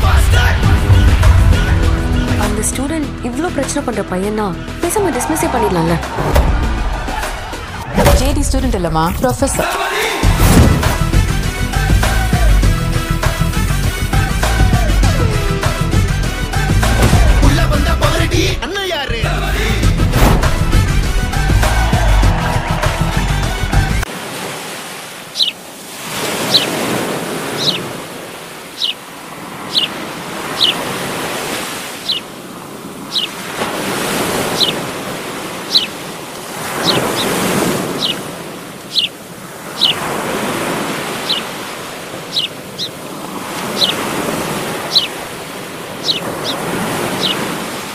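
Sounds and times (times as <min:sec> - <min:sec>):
surf breaking on a beach: 0:24.0 - 0:47.9.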